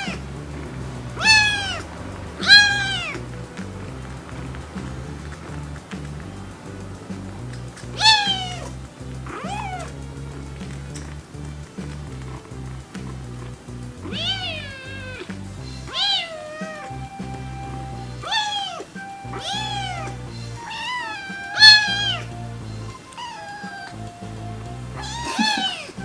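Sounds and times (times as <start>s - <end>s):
background music with low notes: 0.0s - 26.0s
kitten meowing: 1.2s - 3.2s, 8.0s - 10.0s, 14.0s - 15.3s, 15.9s - 26.0s.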